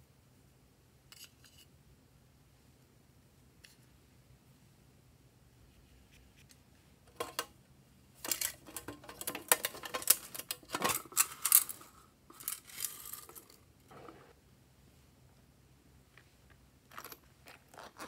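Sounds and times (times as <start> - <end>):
small plastic pieces clattering: 8.2 - 13.6.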